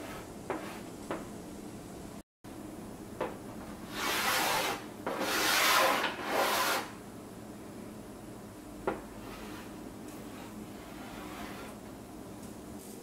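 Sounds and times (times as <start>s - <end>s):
chalk scraping on chalkboard: 0.0s - 0.9s, 3.9s - 6.9s, 9.2s - 11.8s
chalk tapping on board: 0.5s - 1.3s.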